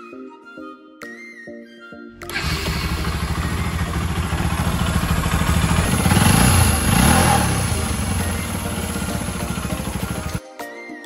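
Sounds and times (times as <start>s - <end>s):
motorcycle engine idling and revving: 2.3s - 10.4s.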